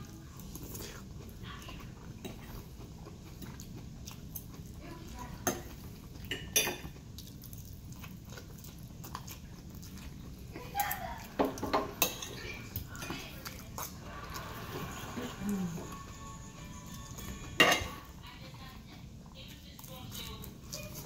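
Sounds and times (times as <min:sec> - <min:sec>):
person chewing: 0:00.0 - 0:18.2
low steady hum: 0:00.0 - 0:21.0
cutlery clinking on plate: 0:05.4 - 0:06.9, 0:17.5 - 0:18.0.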